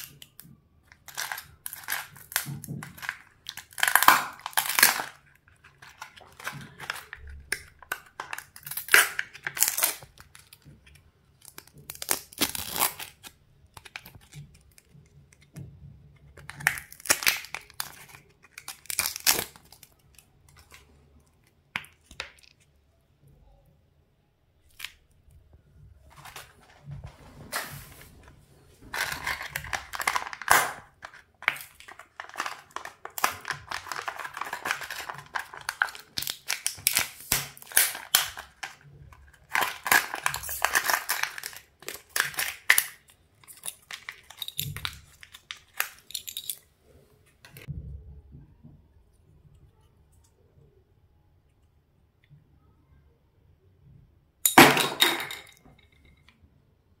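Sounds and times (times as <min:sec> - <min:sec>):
foil lids crinkling and tearing: 0:00.0 - 0:10.6, 0:11.4 - 0:14.9, 0:16.4 - 0:20.8, 0:27.4 - 0:46.4.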